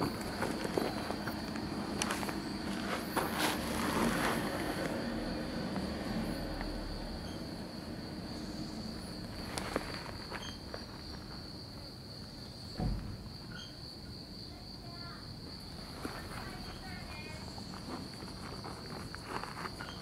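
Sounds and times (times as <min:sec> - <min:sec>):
insects singing: 0:00.0 - 0:20.0
short dull thump: 0:12.8 - 0:13.2.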